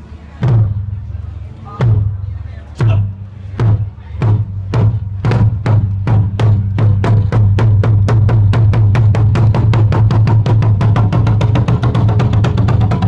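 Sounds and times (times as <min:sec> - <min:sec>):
barrel drum roll with sticks: 0:03.6 - 0:13.0.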